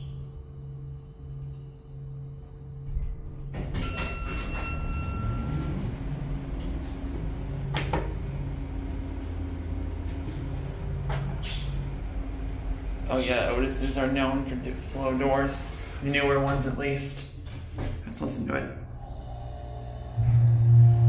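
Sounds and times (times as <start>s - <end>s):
steady low hum: 0.0s - 21.0s
elevator door clunk: 2.8s - 13.0s
elevator door sliding: 2.9s - 19.0s
electronic chime tone: 3.8s - 6.0s.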